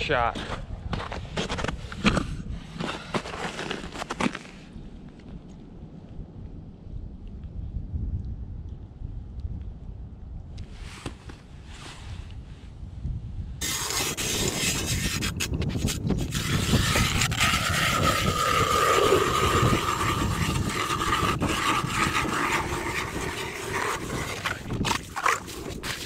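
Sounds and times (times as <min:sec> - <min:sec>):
ice auger grinding through ice: 0:13.6 - 0:26.0.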